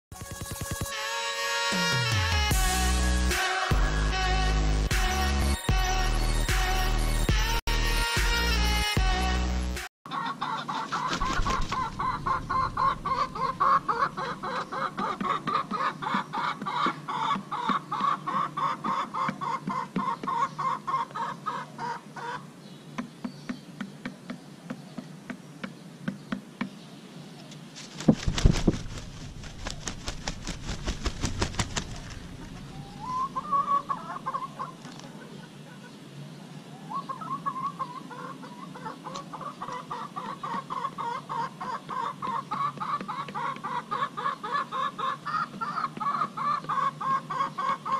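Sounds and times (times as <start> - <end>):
rooster clucking: 10.1 - 22.5, 31.4 - 36.0, 36.9 - 47.9.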